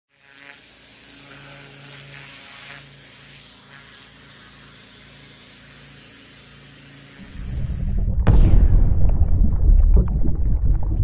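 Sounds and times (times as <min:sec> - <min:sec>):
pressure washer water spraying: 0:00.5 - 0:08.0
machine humming: 0:06.9 - 0:08.6.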